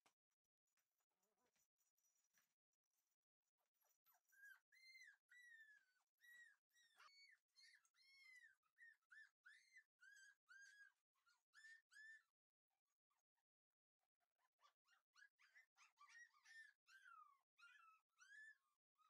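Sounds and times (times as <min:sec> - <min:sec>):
puppy whimpering: 0:04.3 - 0:12.2, 0:14.6 - 0:18.7.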